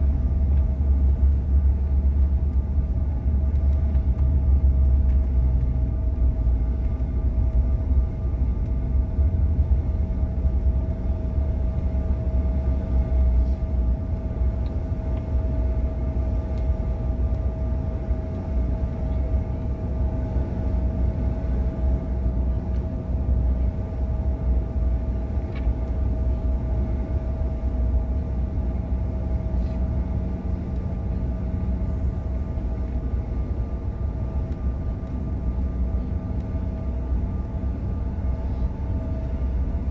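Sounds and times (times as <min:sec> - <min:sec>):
jet engine rumble: 0:00.0 - 0:39.9
jet engine whine: 0:00.0 - 0:39.9.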